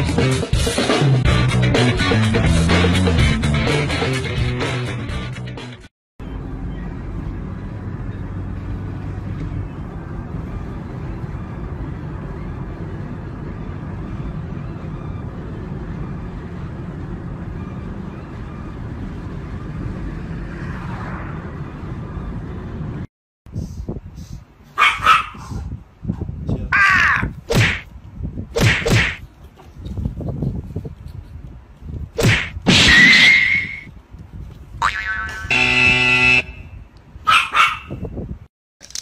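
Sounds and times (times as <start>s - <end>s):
road rumble inside car: 6.2s - 23.1s
wind noise: 17.6s - 39.0s.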